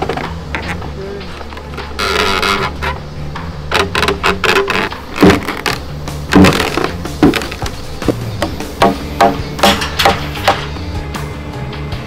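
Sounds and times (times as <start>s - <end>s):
background music: 0.0s - 12.0s
sharp wooden knocks: 3.7s - 10.7s.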